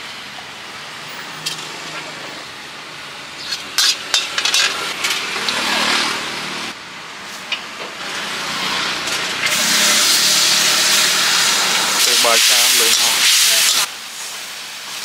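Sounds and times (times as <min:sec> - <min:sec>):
metal ladle scraping a wok: 0:03.4 - 0:06.2, 0:08.1 - 0:12.1
loud sizzling hiss of steam: 0:07.3 - 0:15.0
oil sizzling in a pan: 0:09.4 - 0:15.0.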